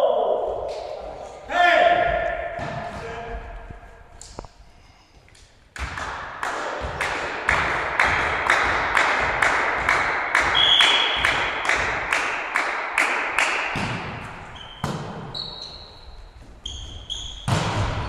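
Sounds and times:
sharp rhythmic strokes in hall: 0.0s - 18.0s
volleyball being struck: 5.8s - 15.4s, 17.3s - 18.0s
shoes squeaking on wooden court: 14.0s - 18.0s.

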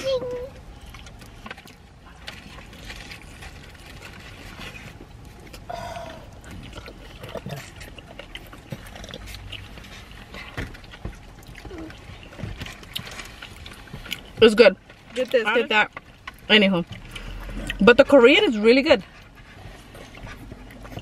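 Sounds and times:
person chewing with wet mouth noises: 0.6s - 18.2s, 18.8s - 21.0s.

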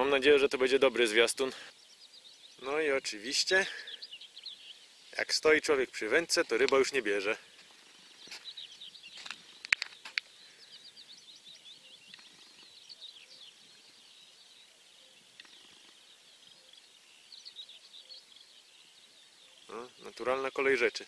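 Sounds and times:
small birds chirping: 0.0s - 21.0s
sharp clicks: 9.2s - 10.3s.

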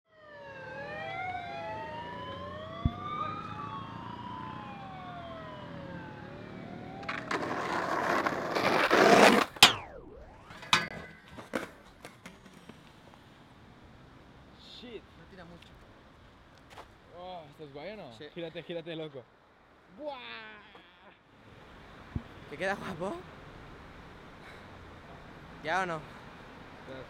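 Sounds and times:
siren wailing: 0.1s - 7.7s, 9.6s - 11.4s
skateboard clattering: 7.0s - 9.9s
skateboard grinding metal handrail: 7.0s - 9.9s, 10.5s - 12.6s.

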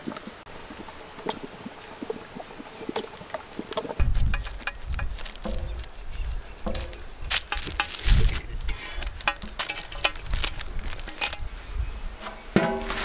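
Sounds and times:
metal utensils clinking: 9.0s - 11.5s.

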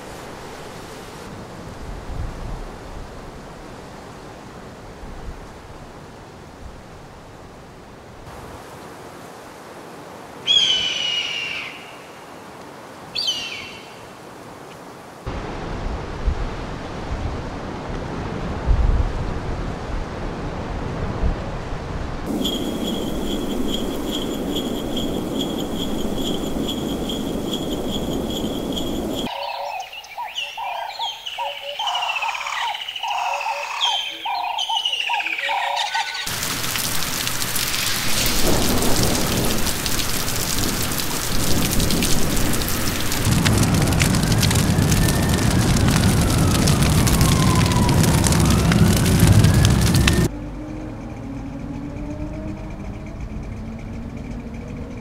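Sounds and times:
heavy rain falling: 0.0s - 7.1s, 15.0s - 29.4s, 33.1s - 50.3s
chirping calls: 10.5s - 12.1s, 13.2s - 14.0s, 22.3s - 36.3s
steady hiss: 22.3s - 29.3s, 36.3s - 43.7s
high ringing tone: 22.3s - 29.9s
low rumble: 41.5s - 55.0s
siren sweeping: 44.2s - 53.3s.

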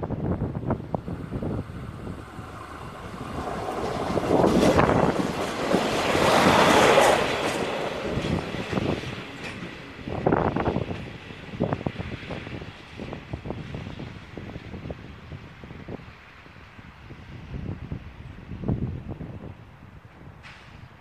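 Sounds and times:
diesel train passing: 0.0s - 21.0s
wheels clattering on rails: 0.7s - 13.3s.

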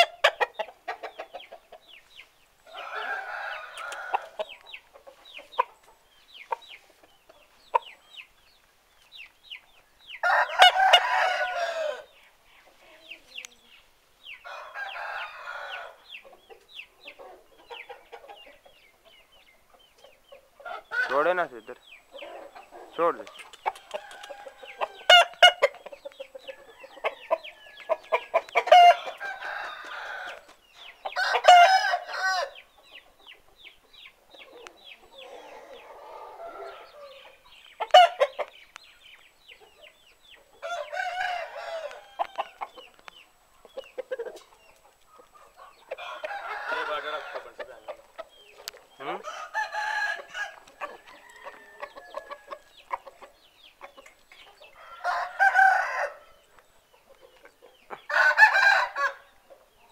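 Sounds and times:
roosters crowing: 0.0s - 1.2s, 2.6s - 4.6s, 10.2s - 12.2s, 14.3s - 16.2s, 20.6s - 32.8s, 34.7s - 38.5s, 40.4s - 43.0s, 45.2s - 56.7s, 57.9s - 59.9s
chickens clucking: 0.0s - 59.9s.

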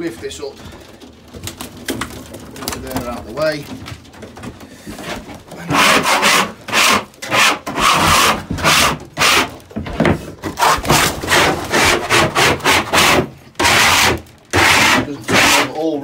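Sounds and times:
hand scraper scraping floor: 4.8s - 16.0s.

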